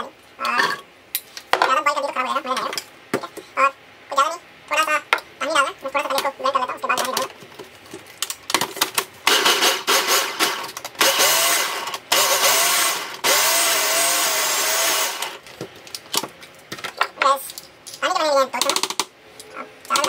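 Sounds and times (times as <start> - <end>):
electric food chopper whirring: 9.3 - 15.4.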